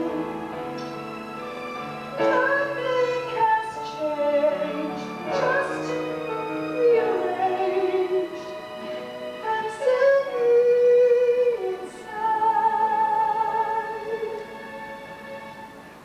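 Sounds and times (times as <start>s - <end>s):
woman singing: 0.0s - 0.8s, 2.1s - 14.6s
instrumental accompaniment: 0.0s - 16.0s.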